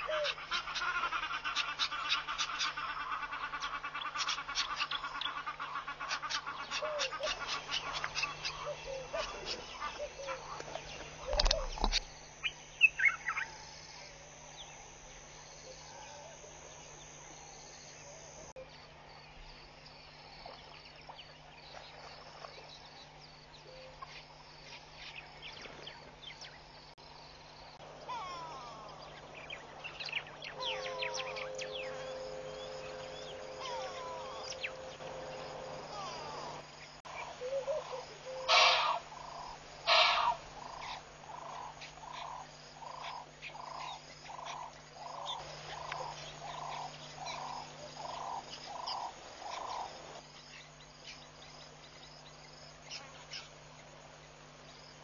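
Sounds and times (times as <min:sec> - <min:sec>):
bird gliding calls: 0:00.0 - 0:15.0, 0:27.8 - 0:50.2
birds chirping: 0:00.0 - 0:55.0
steady low hum: 0:00.0 - 0:55.0.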